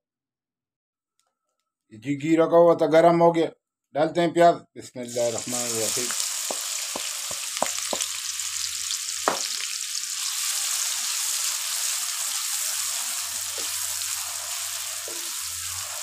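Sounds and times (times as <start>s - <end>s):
onions sizzling in a wok: 5.1s - 16.0s
spatula knocking against pan: 6.4s - 8.2s, 9.3s - 9.6s.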